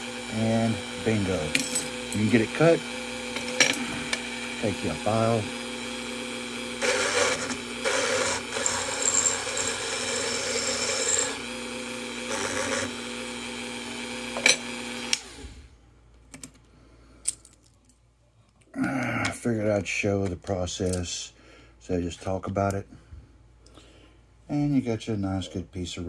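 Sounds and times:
rotary tool running: 0:00.3 - 0:13.1.

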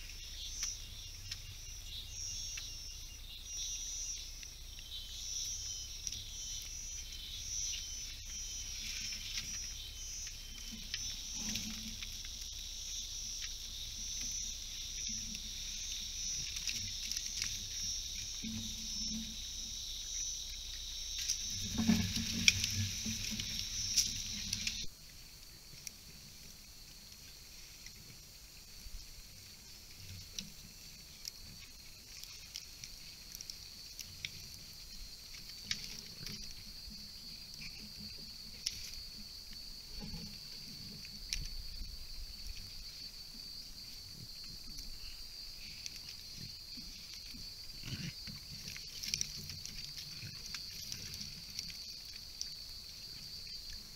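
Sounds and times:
high-pitched insect drone: 0:00.0 - 0:24.9
high-pitched insect chorus: 0:00.0 - 0:53.9
faint rustling: 0:05.4 - 0:24.9
light clicks and rustles: 0:45.6 - 0:53.9.

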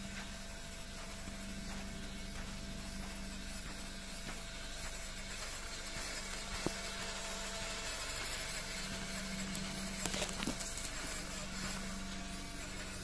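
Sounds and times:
electric motor whine: 0:00.0 - 0:13.0
hiss: 0:02.0 - 0:10.0.

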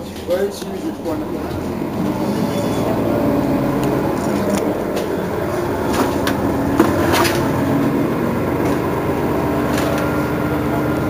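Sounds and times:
bus diesel engine idling: 0:00.0 - 0:11.0.

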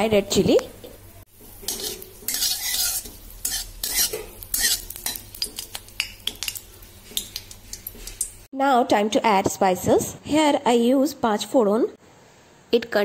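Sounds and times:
oil sizzling: 0:00.0 - 0:08.5
spatula scraping and tapping pan: 0:00.8 - 0:08.4.

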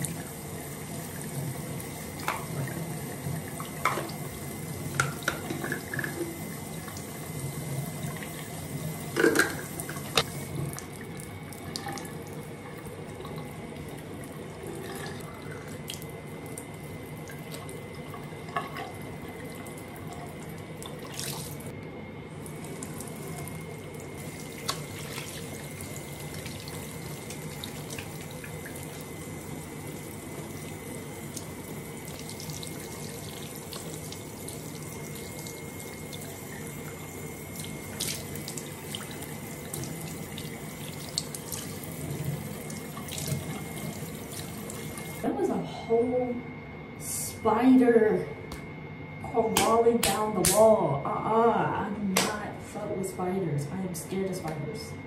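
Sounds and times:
faucet running into sink: 0:00.0 - 0:16.0, 0:22.4 - 0:45.2
hands washing splashes: 0:20.8 - 0:21.6, 0:24.2 - 0:29.1, 0:37.5 - 0:45.2.

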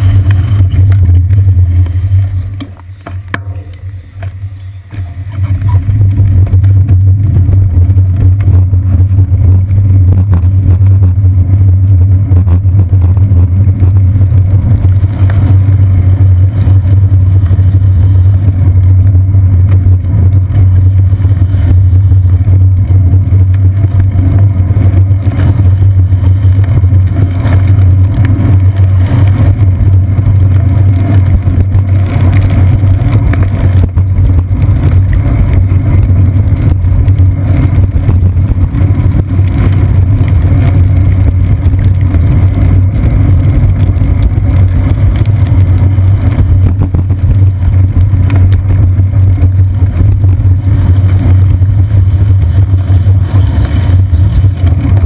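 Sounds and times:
city traffic: 0:00.0 - 0:12.4
road vibration rumble: 0:00.0 - 0:55.0
wind on camera: 0:00.0 - 0:55.0.

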